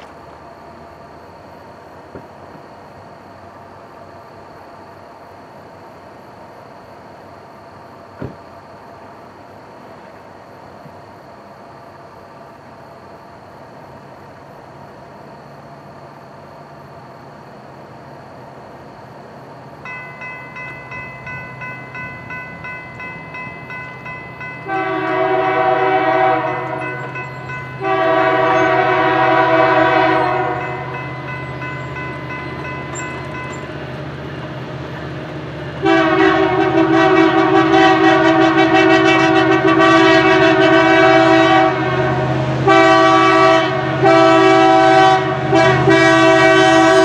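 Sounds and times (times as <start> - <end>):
train rumble: 0.0 - 47.0
railroad crossing bell ringing: 19.8 - 35.0
locomotive horn blasts: 24.4 - 33.6, 35.8 - 47.0.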